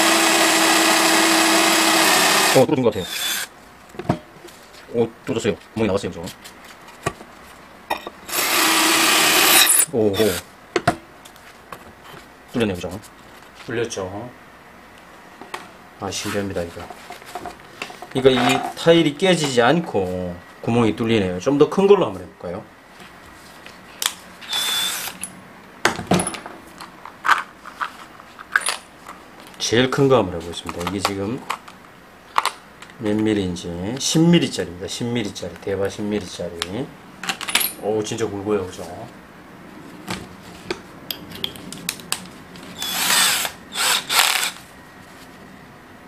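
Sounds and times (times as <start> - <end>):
drill chuck tightening bursts: 0.0 - 3.5, 8.3 - 10.4, 24.5 - 25.2, 42.8 - 44.6
hissing whir with high whine: 24.5 - 25.3, 42.8 - 44.7.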